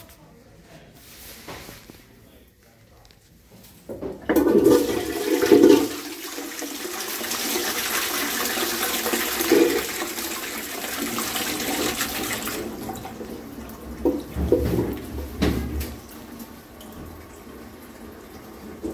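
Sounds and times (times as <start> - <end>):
toilet flushing: 4.0 - 18.9.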